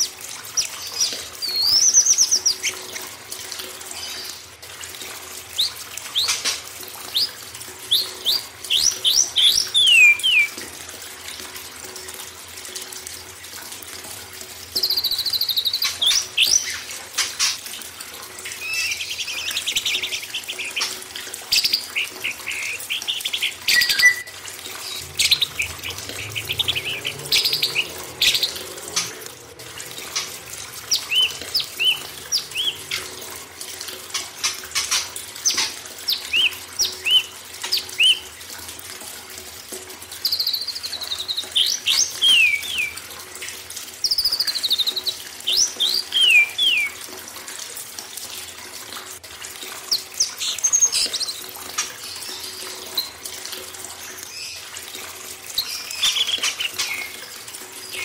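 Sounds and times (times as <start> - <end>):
running water: 0.0 - 58.0
songbirds singing: 5.6 - 10.6, 18.4 - 29.3, 30.0 - 33.2, 34.2 - 38.4, 40.2 - 43.1, 44.0 - 47.0.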